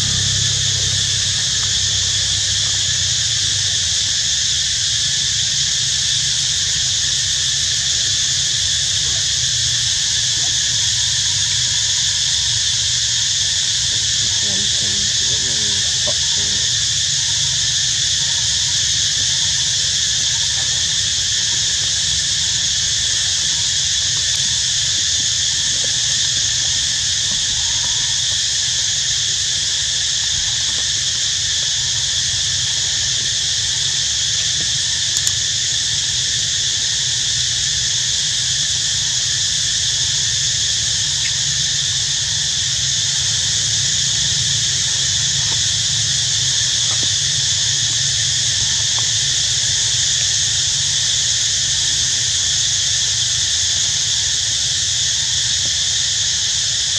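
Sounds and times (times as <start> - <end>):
low steady rumble: 0.0 - 4.5
insects droning: 0.0 - 56.9.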